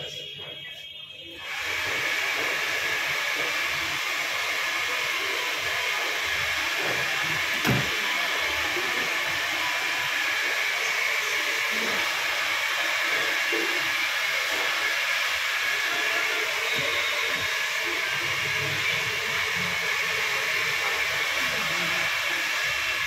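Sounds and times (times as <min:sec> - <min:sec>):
electric blower whooshing: 0:01.4 - 0:23.0.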